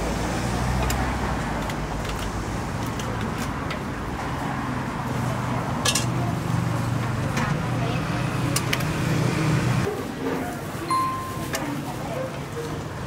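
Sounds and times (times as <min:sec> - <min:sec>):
motor traffic: 0:00.0 - 0:09.9.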